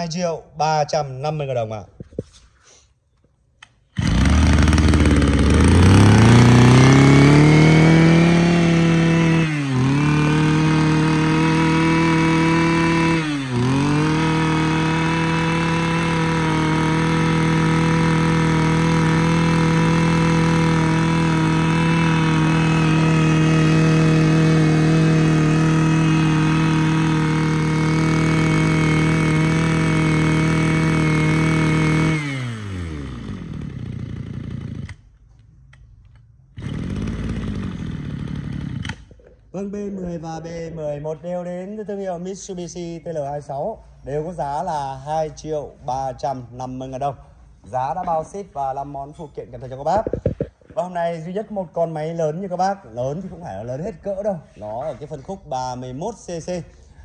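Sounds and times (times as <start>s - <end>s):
brush cutter engine revving: 3.9s - 35.0s, 36.6s - 39.4s, 49.9s - 50.8s.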